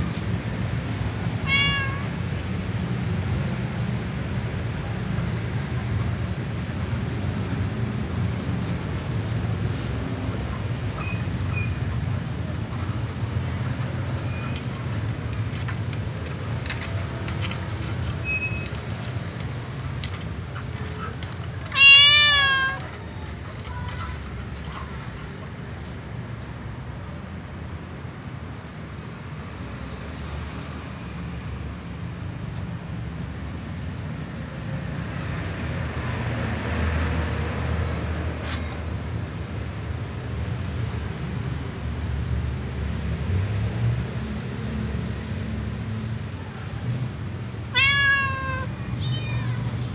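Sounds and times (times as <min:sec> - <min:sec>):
cat meowing: 0:01.4 - 0:02.2, 0:21.0 - 0:23.0, 0:47.7 - 0:49.9.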